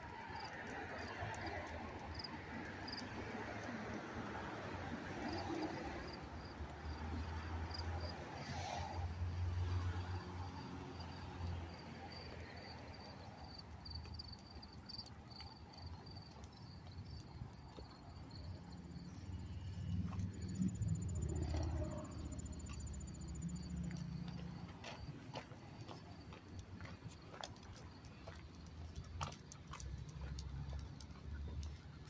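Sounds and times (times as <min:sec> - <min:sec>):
footsteps on concrete: 0:23.8 - 0:32.0.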